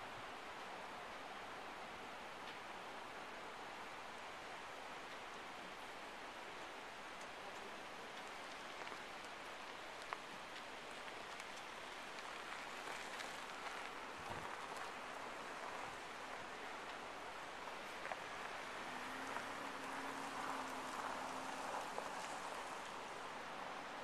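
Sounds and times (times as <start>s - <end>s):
outdoor background hiss: 0.0s - 24.0s
faint small ticks: 2.4s - 2.6s, 7.1s - 19.5s.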